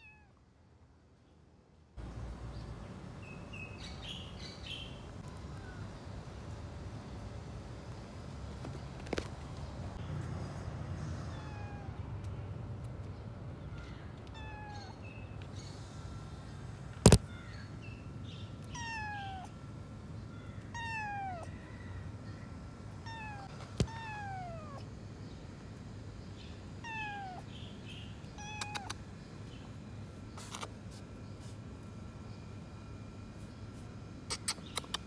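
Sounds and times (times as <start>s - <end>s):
kitten meowing: 0.0s - 0.3s, 11.3s - 12.0s, 14.2s - 15.0s, 18.6s - 19.5s, 20.7s - 21.5s, 23.0s - 24.8s, 26.8s - 27.4s, 28.3s - 29.0s.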